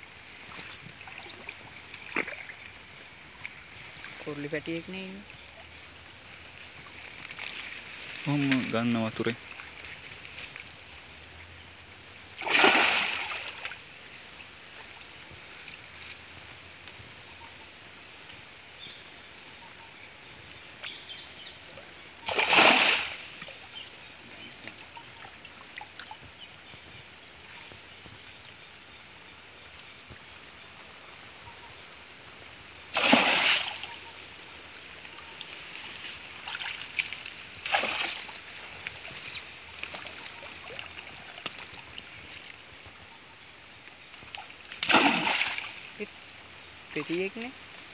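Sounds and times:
faint water hiss: 0.0 - 47.9
loud water splashes: 12.4 - 13.8, 22.2 - 23.5, 32.9 - 34.1, 36.5 - 38.6, 44.7 - 46.1.

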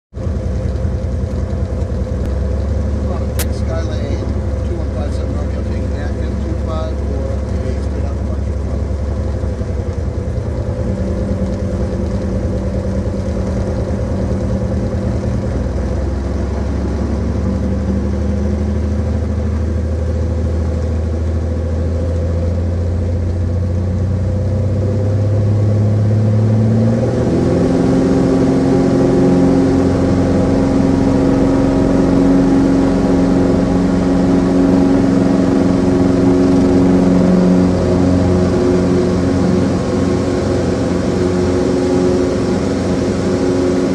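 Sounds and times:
light airplane engine and propeller: 0.1 - 43.9.

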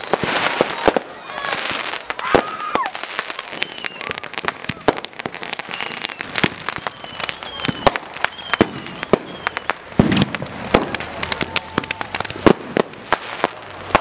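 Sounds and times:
falling firework whistles: 0.0 - 12.6
fireworks bangs and pops: 0.0 - 14.0
deep firework bang: 10.0 - 11.0.

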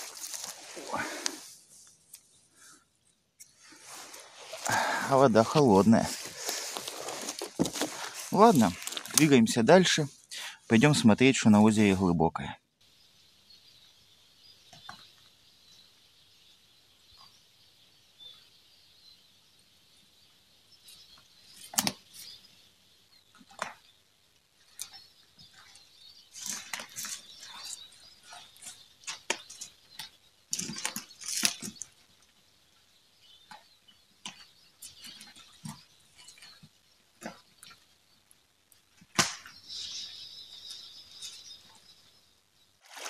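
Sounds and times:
footsteps crunching through dry leaves: 0.0 - 1.5, 3.8 - 9.3.

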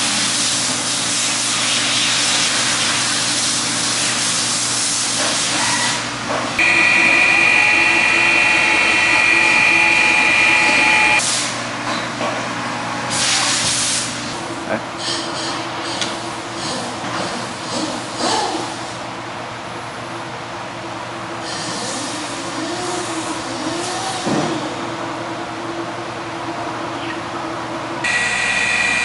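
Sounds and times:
grinding wheel high whine: 6.6 - 11.2, 28.0 - 29.0.

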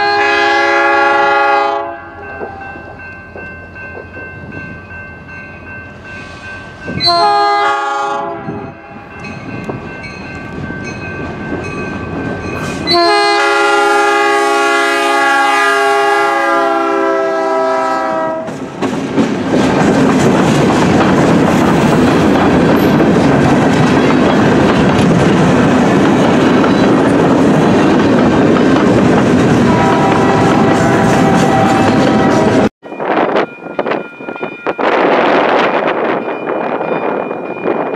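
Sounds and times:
train horn: 0.0 - 2.7, 7.0 - 9.1, 12.7 - 18.6, 29.6 - 32.7
train wheels clattering on rails: 2.2 - 4.8, 18.4 - 32.7.

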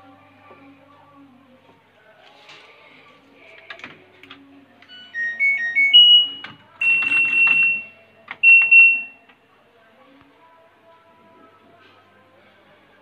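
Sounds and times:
washing machine electronic beep tune: 4.9 - 9.2
longer beeps: 5.0 - 9.1.

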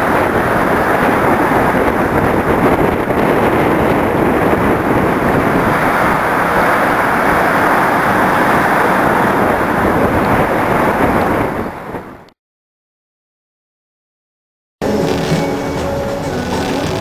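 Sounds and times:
boat wake rushing: 0.0 - 12.4, 14.8 - 17.0
wind buffeting microphone: 0.0 - 12.4.

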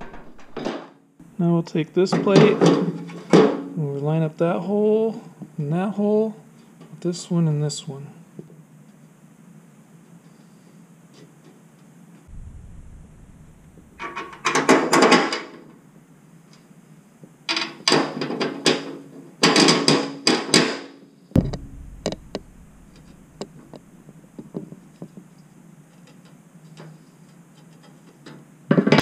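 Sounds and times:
metal plate scraping and clattering: 0.0 - 0.7.

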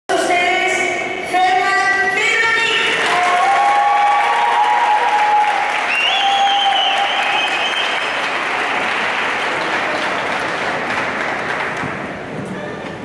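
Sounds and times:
audience applauding: 2.8 - 12.3.

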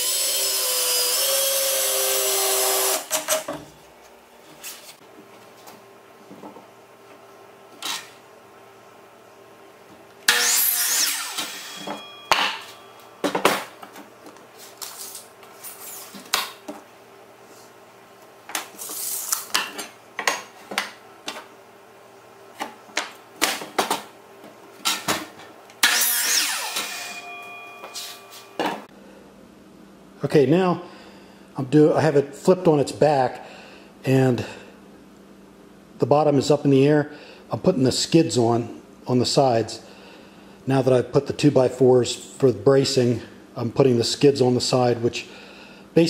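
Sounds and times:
miter saw cutting wood: 0.0 - 3.4, 10.3 - 12.0, 25.8 - 27.3.

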